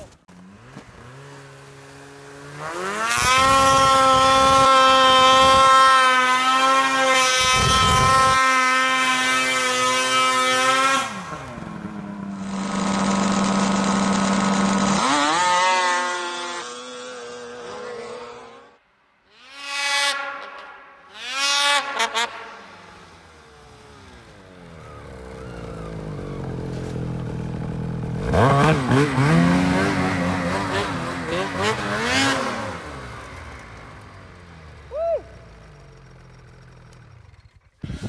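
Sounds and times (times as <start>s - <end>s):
snowmobile engine revving: 0.0s - 38.0s.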